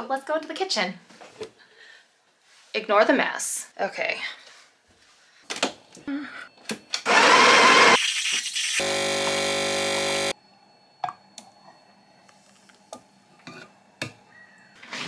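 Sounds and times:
coffee machine rushing and humming: 7.1 - 8.0, 8.8 - 10.4.

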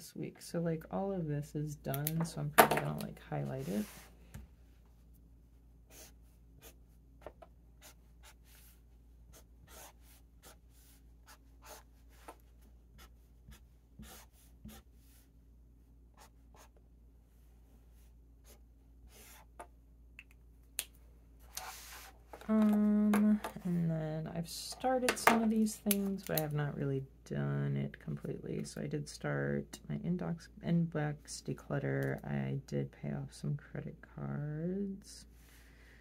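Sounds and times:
highlighter scratching on paper: 3.5 - 4.1, 5.9 - 6.8, 7.8 - 12.4, 13.0 - 15.3, 16.1 - 16.8, 18.4 - 19.5, 21.5 - 22.2.

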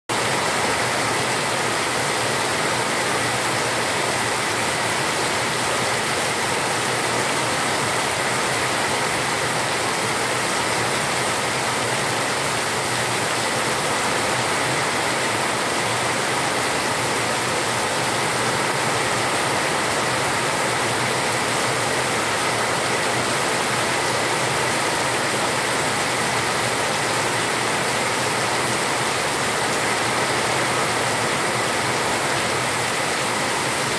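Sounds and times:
heavy rain on concrete: 0.1 - 33.9.

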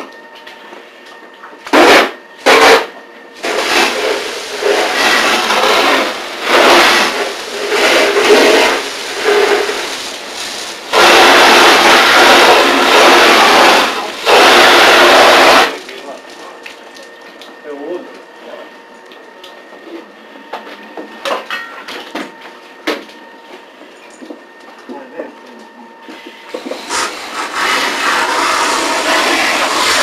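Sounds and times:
fire hose spraying water: 3.4 - 16.9, 26.5 - 30.0.

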